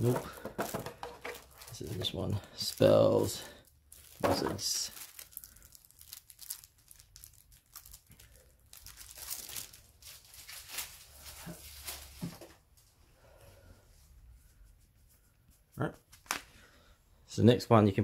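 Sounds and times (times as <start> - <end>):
shrink-wrap crinkling and tearing: 0.0 - 12.3.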